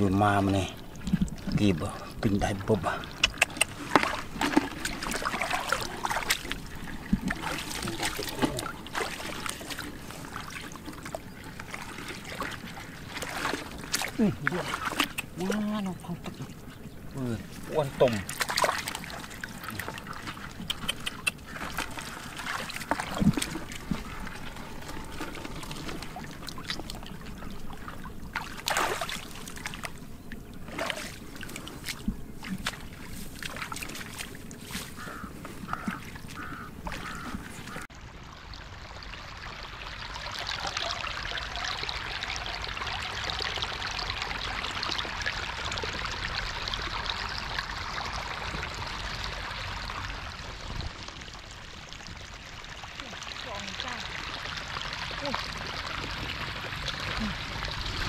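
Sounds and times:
running water rushing: 0.0 - 58.0
water trickling and splashing: 0.0 - 58.0
knocks and clicks in water: 1.0 - 16.6, 18.0 - 30.0, 30.6 - 37.9.

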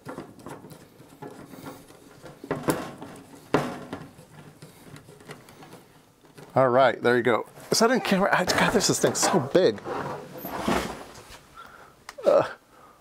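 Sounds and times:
hard plastic knocking and scraping: 0.0 - 6.6.

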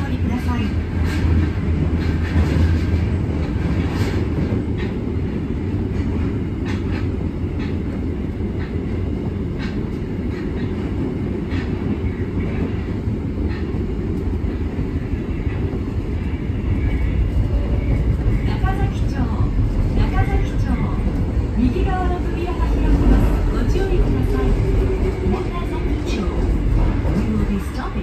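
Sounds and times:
rail joint clicks: 0.0 - 28.0
train wheels rumbling on rail: 0.0 - 28.0.

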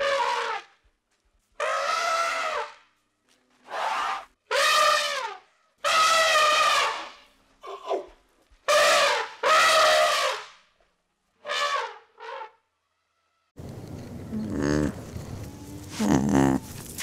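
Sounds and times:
elephant trumpeting: 3.7 - 7.2.

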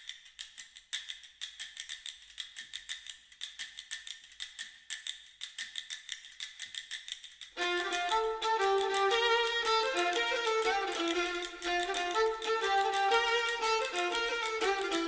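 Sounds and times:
fast clock-like ticking: 0.0 - 15.0
fiddle tune: 7.6 - 15.0.

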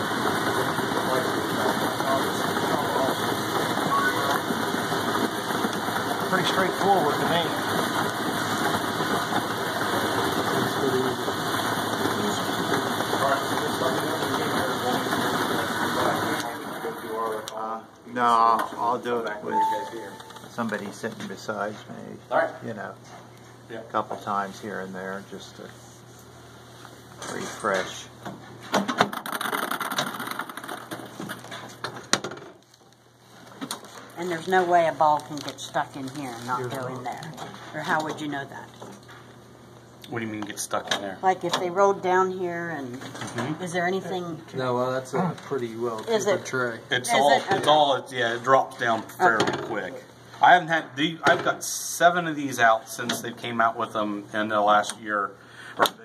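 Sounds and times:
ball blower whirring and rattling: 0.0 - 17.4, 28.3 - 32.6.

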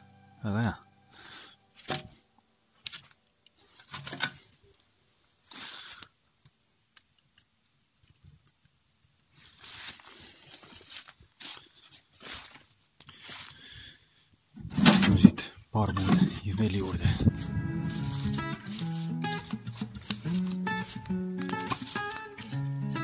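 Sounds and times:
wood fire crackling: 1.1 - 14.2, 14.8 - 23.0
fire popping: 2.8 - 10.4, 16.0 - 23.0
rustling noise: 9.3 - 13.6, 14.6 - 22.6.

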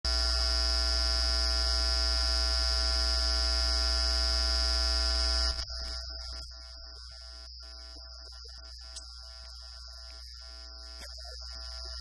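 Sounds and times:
loud electrical buzz: 0.1 - 12.0.

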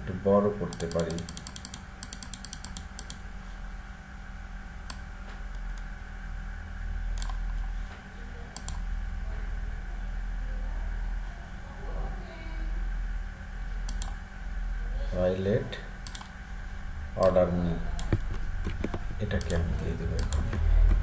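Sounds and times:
low electrical hum: 0.0 - 21.0
computer mouse clicks: 0.7 - 3.2, 4.9 - 5.9, 7.2 - 7.6, 8.6 - 8.8, 13.9 - 14.2, 16.0 - 16.4, 18.0 - 21.0.

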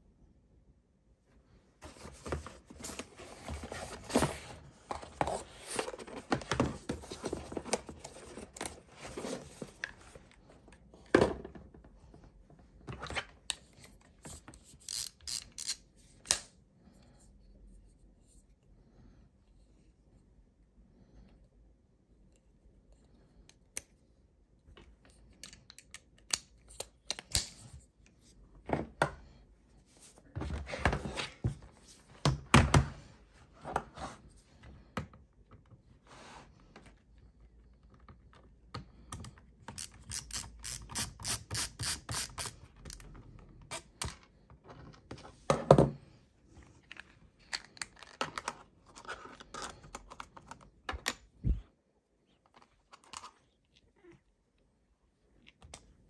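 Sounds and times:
ratcheting screwdriver clicking: 14.8 - 16.4, 39.7 - 42.6.

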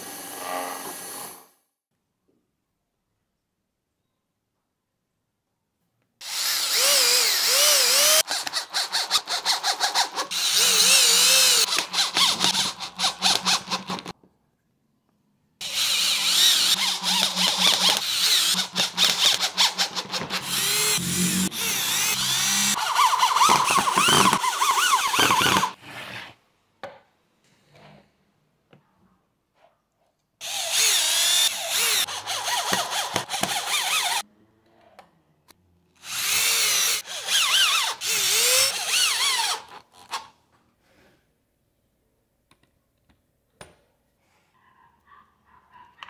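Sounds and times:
cordless drill driving screws: 6.2 - 14.1, 15.6 - 25.8, 30.4 - 34.2, 36.0 - 40.2.

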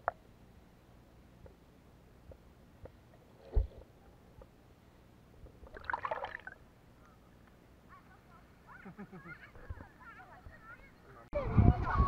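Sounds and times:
water splashing: 5.6 - 6.6.

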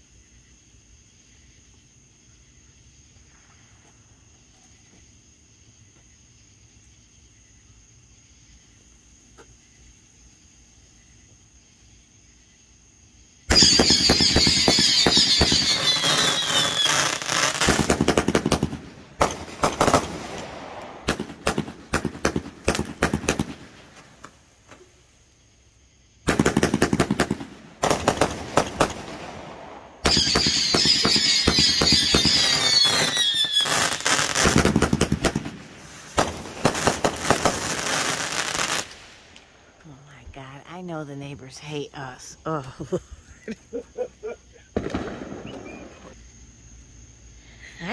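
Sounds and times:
fireworks popping and crackling: 13.5 - 24.9, 26.2 - 39.5, 44.7 - 46.2
fireworks whistling: 13.5 - 24.9, 26.2 - 39.5, 44.5 - 46.2.

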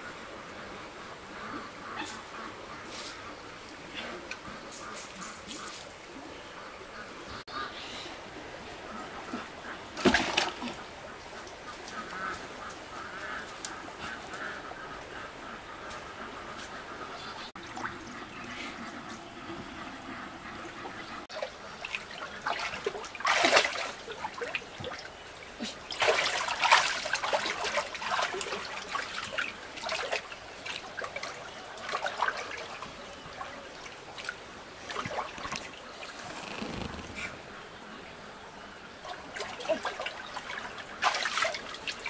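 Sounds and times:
water trickling and splashing: 8.2 - 37.2, 38.9 - 42.0.

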